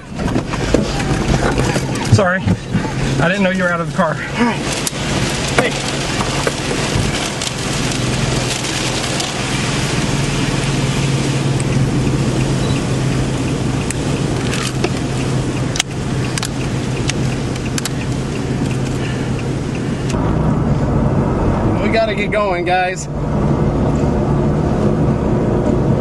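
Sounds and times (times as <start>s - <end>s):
sharp clicks and cracks: 13.5s - 19.0s.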